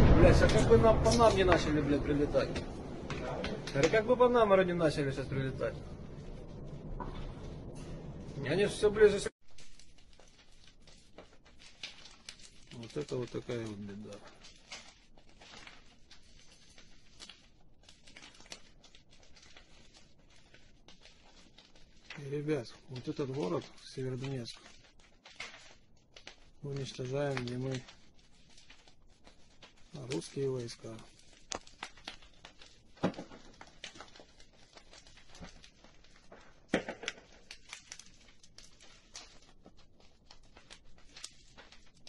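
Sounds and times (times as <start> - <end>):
faint crackling and clicking: 0.0 - 8.5, 9.1 - 42.0
sharp cracks: 0.0 - 42.0.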